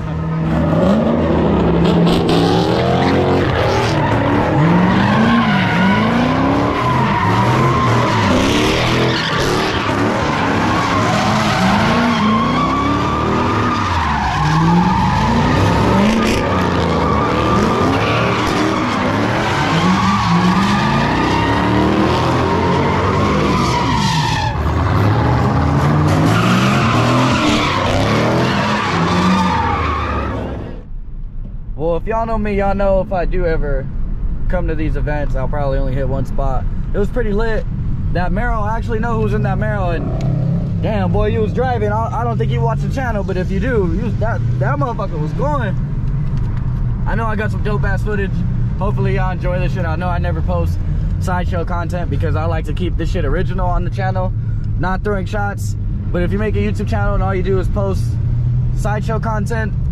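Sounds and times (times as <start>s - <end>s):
car engine revving: 0.0s - 31.0s, 37.8s - 59.9s
tyres squealing: 3.0s - 30.6s.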